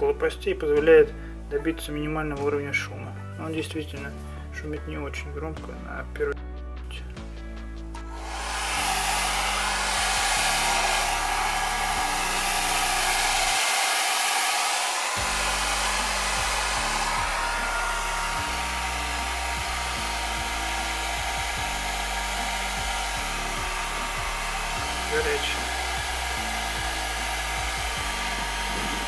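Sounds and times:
hair dryer blowing air: 0:08.0 - 0:29.0.

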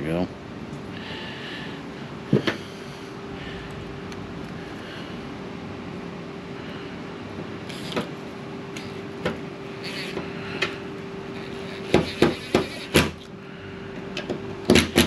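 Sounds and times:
cordless drill whirring: 0:07.6 - 0:08.1, 0:09.8 - 0:13.3
sharp knocks: 0:11.9 - 0:13.2.

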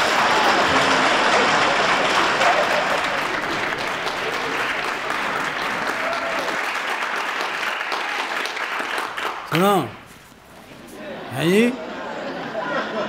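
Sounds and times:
audience applause: 0:00.0 - 0:10.2, 0:11.0 - 0:11.8.

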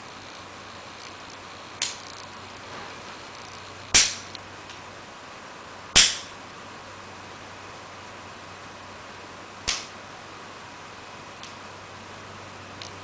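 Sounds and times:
sharp hissy cracks: 0:00.0 - 0:04.9, 0:05.9 - 0:06.4, 0:09.6 - 0:10.0, 0:11.3 - 0:11.7, 0:12.7 - 0:13.0.

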